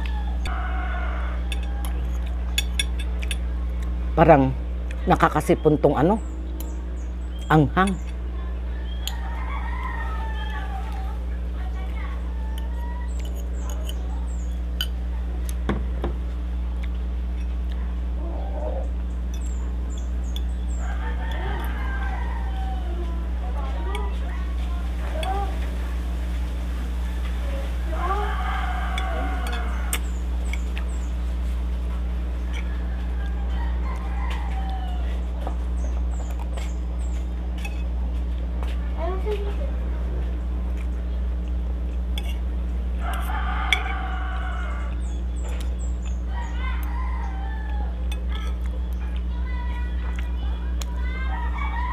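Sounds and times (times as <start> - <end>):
rooster crowing: 0.0 - 2.6, 8.6 - 11.2, 20.6 - 24.6, 27.0 - 30.3, 32.4 - 35.5, 43.0 - 45.2, 46.0 - 48.4, 51.0 - 51.9
chickens calling: 0.0 - 2.9, 5.2 - 15.7, 16.6 - 38.6, 40.3 - 51.9
small birds chirping: 0.0 - 15.7, 16.4 - 25.9, 26.8 - 39.7, 40.3 - 51.9
steady low hum: 0.0 - 51.9
cutlery clicking on a plate: 1.5 - 3.5
utensils clicking on a plate: 1.5 - 3.5, 12.5 - 14.1, 28.8 - 31.0, 41.5 - 44.1.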